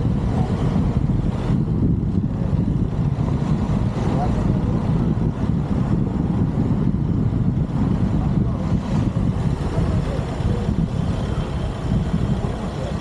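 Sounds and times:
vehicle engine running: 0.0s - 13.0s
wind buffeting microphone: 0.0s - 13.0s.

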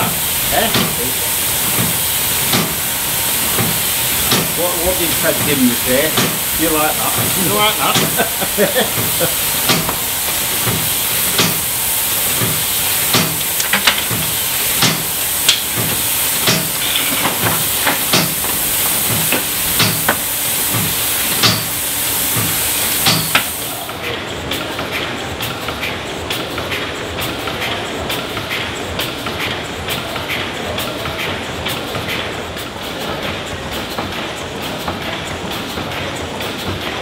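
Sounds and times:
steam hissing from valve: 0.0s - 24.0s
metal knocks and clanks: 13.2s - 20.2s.

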